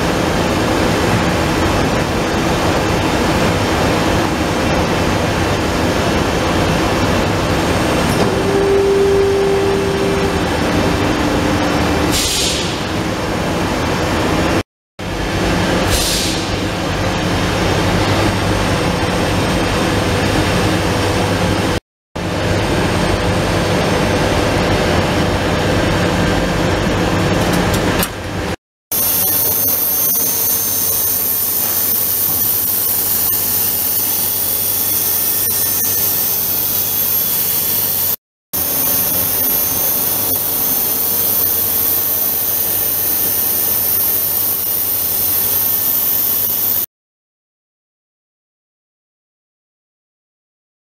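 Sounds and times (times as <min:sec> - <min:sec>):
laser cutter hum and hiss: 0:00.0 - 0:14.4, 0:15.1 - 0:21.3, 0:28.9 - 0:46.9.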